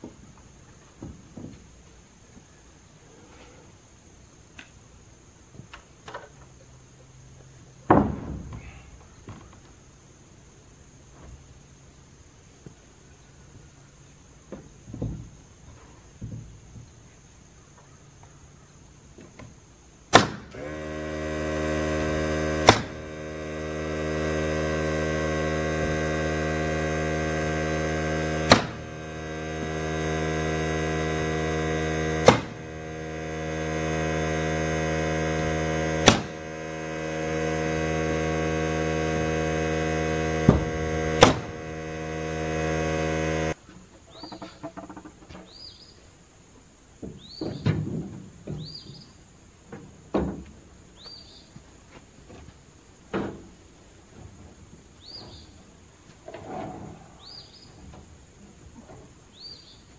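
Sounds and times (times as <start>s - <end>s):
nail gun shots: 20.1s - 20.6s, 22.6s - 23.0s, 28.4s - 28.8s, 32.2s - 32.6s, 36.0s - 36.4s
steady hum: 20.2s - 43.6s.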